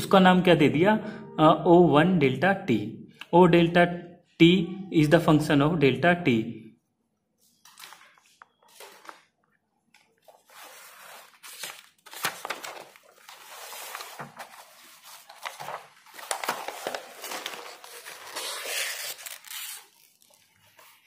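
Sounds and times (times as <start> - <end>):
paper rustling and crinkling: 7.5 - 21.0.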